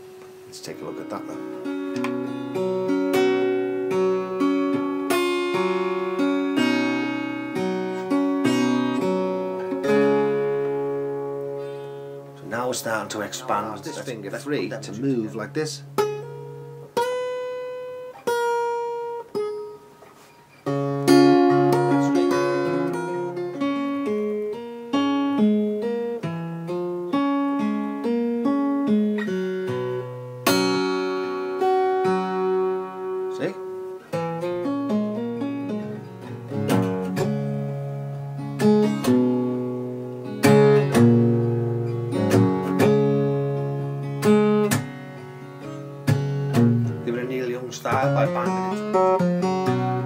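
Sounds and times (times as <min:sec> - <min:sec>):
fingerstyle acoustic guitar: 0:00.0 - 0:50.0.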